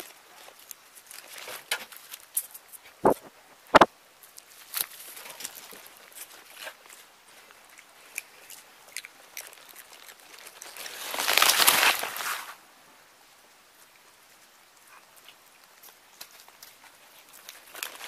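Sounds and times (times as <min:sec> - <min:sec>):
rustling crunch of leaves: 0:00.0 - 0:03.2, 0:03.8 - 0:08.4, 0:09.0 - 0:12.7, 0:15.2 - 0:18.0
monkeys tapping leaves: 0:10.4 - 0:12.4.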